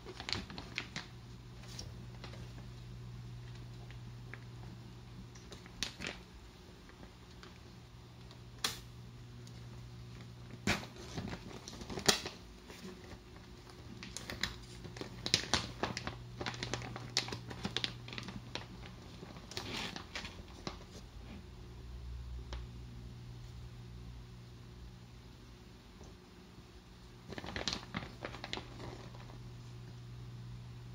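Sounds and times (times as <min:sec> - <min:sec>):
plastic bag crinkling: 0:00.0 - 0:07.7, 0:09.6 - 0:21.0, 0:27.2 - 0:29.5
low steady hum: 0:00.0 - 0:30.9.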